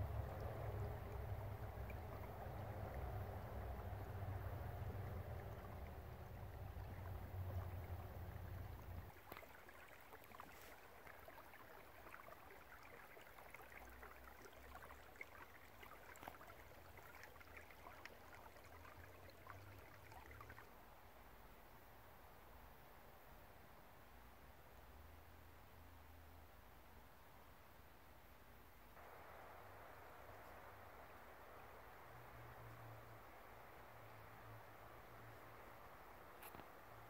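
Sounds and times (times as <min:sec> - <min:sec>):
creek trickling and gurgling: 0:00.0 - 0:37.0
faint hiss: 0:00.0 - 0:37.0.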